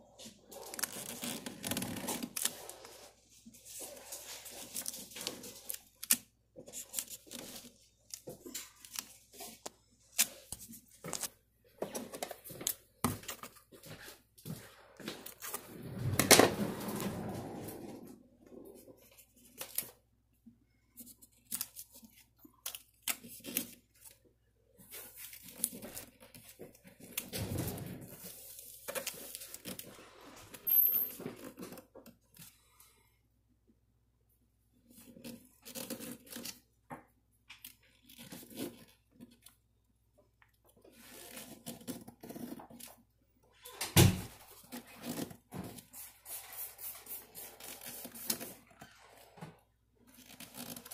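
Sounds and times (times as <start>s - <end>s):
contact paper rustling and tearing: 0.2s - 20.0s, 24.8s - 32.8s, 34.8s - 36.7s, 40.9s - 50.9s.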